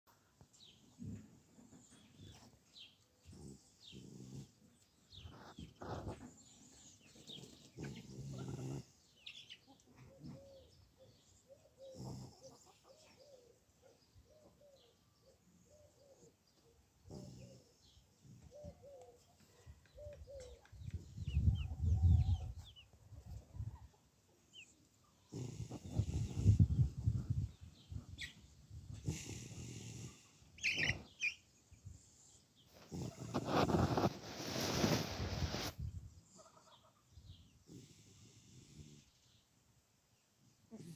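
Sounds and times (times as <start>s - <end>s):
small birds chirping: 0.4s - 40.9s
hens clucking: 30.2s - 31.4s, 32.7s - 35.7s.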